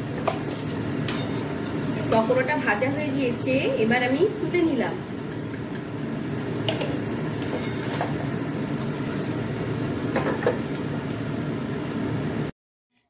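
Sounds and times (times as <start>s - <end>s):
food sizzling in hot oil: 0.0s - 12.4s
metal spoon clinking on pan: 1.0s - 1.8s, 7.4s - 8.0s.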